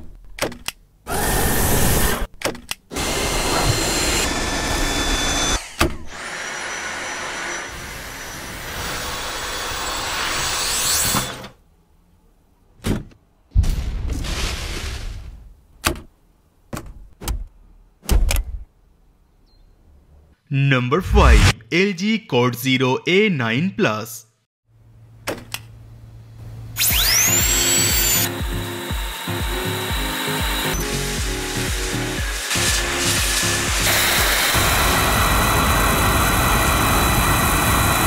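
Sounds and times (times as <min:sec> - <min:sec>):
vacuum cleaner running: 0:02.9 - 0:10.4, 0:26.8 - 0:38.0.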